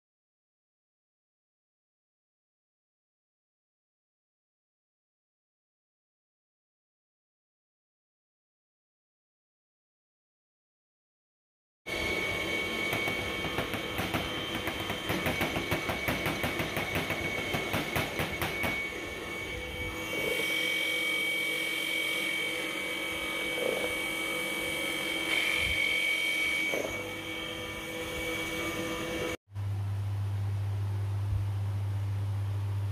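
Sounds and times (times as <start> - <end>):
electric motor whining: 11.9 - 29.4.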